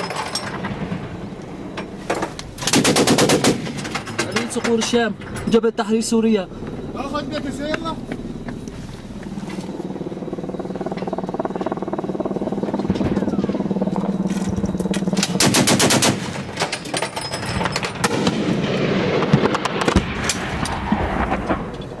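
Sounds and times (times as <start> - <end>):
machine-gun fire: 2.6 - 4.1, 15.3 - 16.6
vehicle engine running: 6.4 - 15.3.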